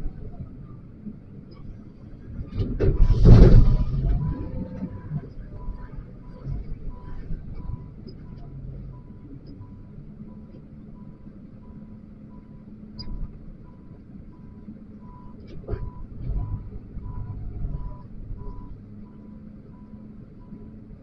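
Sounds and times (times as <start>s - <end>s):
diesel engine running: 0.0s - 21.0s
loud clunk: 2.6s - 4.2s
reversing alarm beeping: 3.9s - 20.9s.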